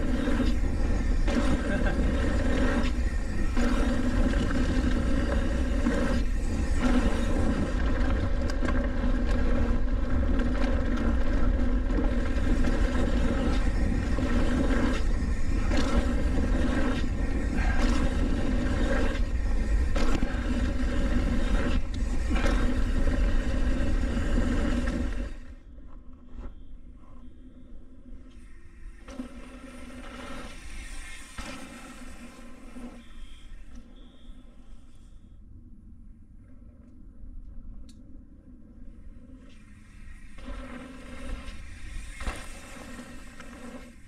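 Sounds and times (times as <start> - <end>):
tyres rolling over dirt: 0.0 - 25.6
steady whirring tone: 0.0 - 44.0.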